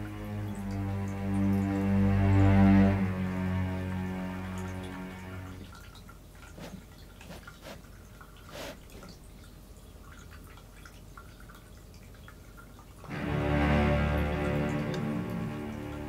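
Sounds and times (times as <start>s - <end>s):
background music: 0.0s - 5.7s, 13.1s - 16.0s.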